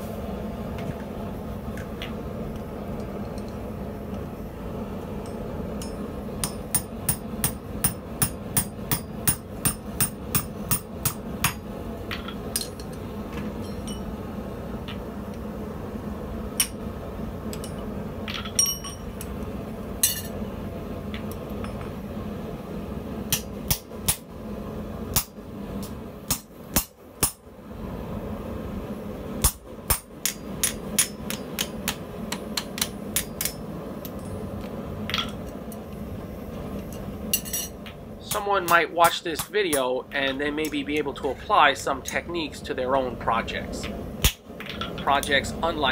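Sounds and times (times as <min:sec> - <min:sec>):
background hum: 0:00.0 - 0:45.9
hammer striking steel on anvil: 0:05.3 - 0:11.6, 0:23.3 - 0:24.2, 0:29.4 - 0:33.6.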